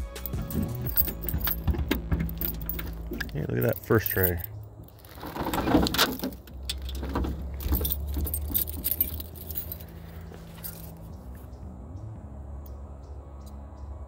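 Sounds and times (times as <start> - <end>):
keys jangling: 0.0 - 11.1
car trunk opening: 0.3 - 3.4, 5.0 - 9.3.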